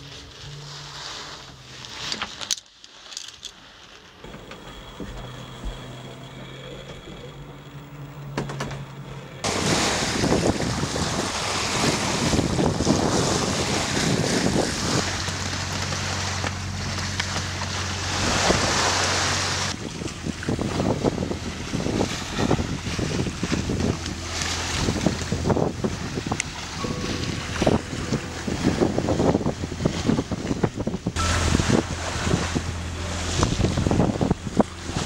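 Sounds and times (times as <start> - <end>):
low steady hum: 3.4 - 35.0
wind buffeting microphone: 9.4 - 17.1, 18.1 - 35.0
water rushing past hull: 9.4 - 35.0.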